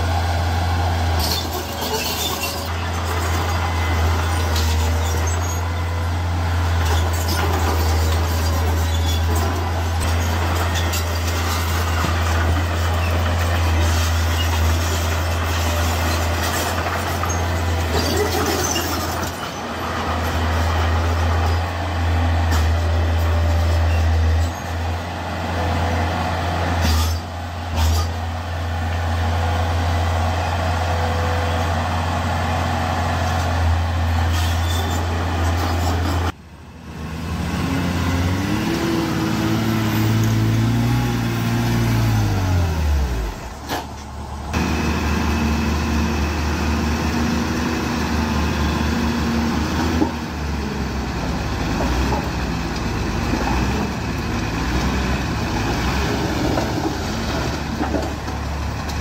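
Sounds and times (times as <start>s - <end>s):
heavy diesel machinery running: 0.0s - 59.0s
engine revving: 37.0s - 43.4s.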